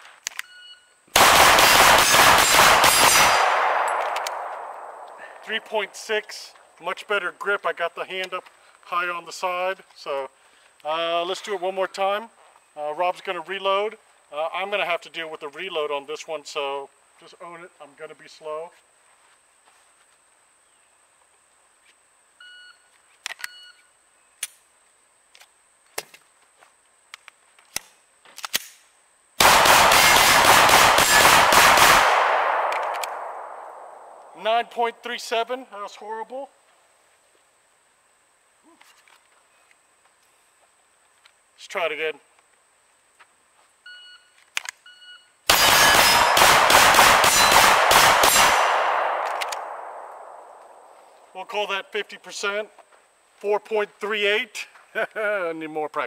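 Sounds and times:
pistol shots: 1.1s - 5.6s, 29.4s - 34.4s, 45.5s - 50.9s
magazine reload: 1.2s - 5.2s, 27.2s - 33.6s, 44.4s - 44.8s, 45.5s - 50.8s.

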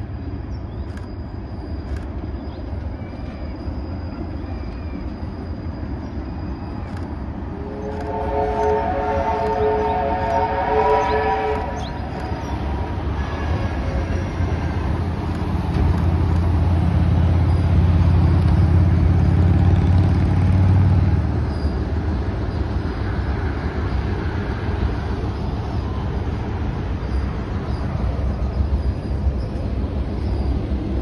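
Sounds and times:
locomotive engine rumble: 0.0s - 31.0s
train horn: 7.6s - 14.8s.

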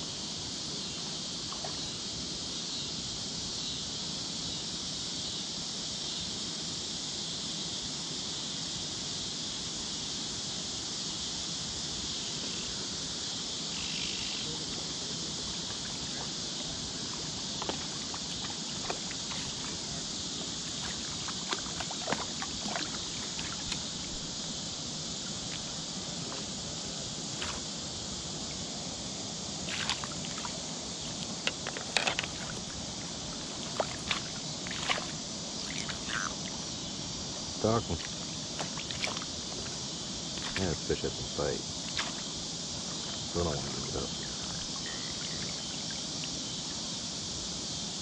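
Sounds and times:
high-pitched insect chorus: 0.0s - 48.0s
fish splashing in water: 15.6s - 24.2s, 27.3s - 27.7s, 29.6s - 36.6s, 38.0s - 40.8s, 41.9s - 42.3s.

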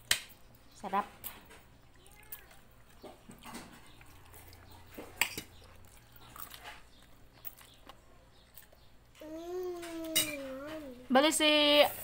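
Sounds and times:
cutlery clinking on plates: 9.8s - 10.8s.

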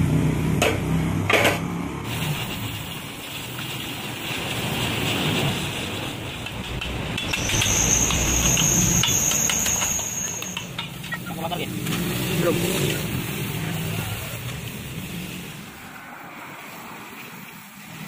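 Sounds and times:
welding crackling hiss: 2.1s - 18.0s
high steady whine: 2.2s - 16.0s.

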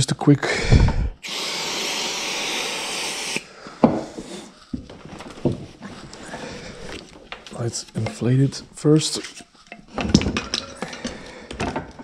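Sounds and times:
aerosol can spraying: 1.2s - 3.5s.

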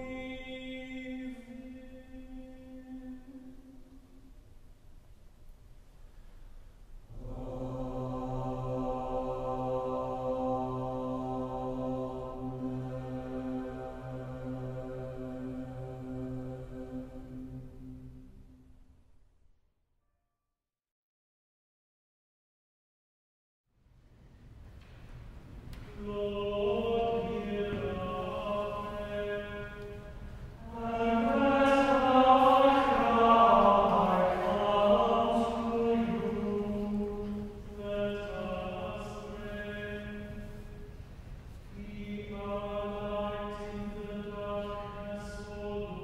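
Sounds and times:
choir chanting response: 7.1s - 18.0s, 25.8s - 40.7s.

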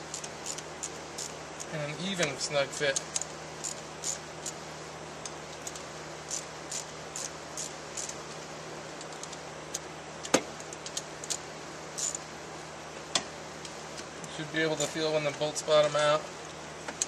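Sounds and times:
socket ratchet clicking: 2.9s - 4.6s, 5.6s - 8.2s, 12.0s - 12.2s.

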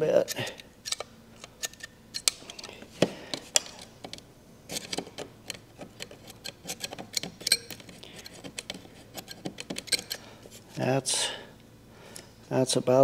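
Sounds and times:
metal file scraping terminals: 3.4s - 10.7s.

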